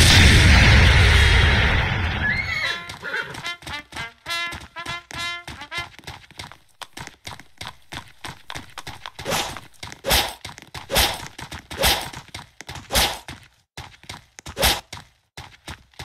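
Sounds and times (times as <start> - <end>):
horse hooves thudding: 2.3 - 16.0.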